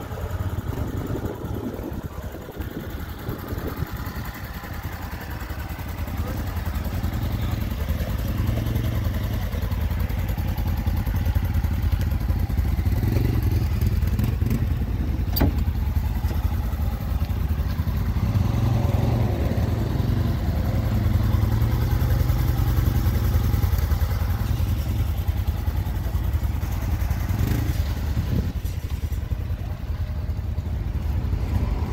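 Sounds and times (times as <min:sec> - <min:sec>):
engine idling: 0:00.0 - 0:31.9.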